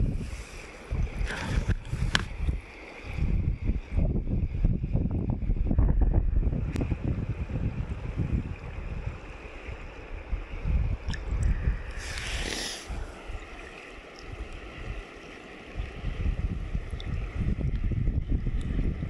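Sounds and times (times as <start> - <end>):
wind buffeting microphone: 0.0 - 15.1, 15.7 - 19.0
stream water rushing: 7.3 - 17.6.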